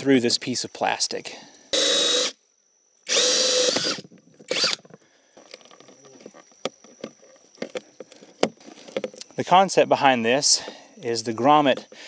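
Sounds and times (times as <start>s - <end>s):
cordless drill whining: 1.7s - 2.4s, 3.0s - 4.9s.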